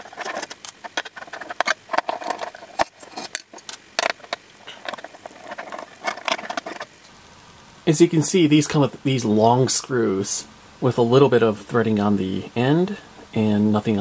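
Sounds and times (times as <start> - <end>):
screwdriver clicks and scrapes: 0.0 - 6.9.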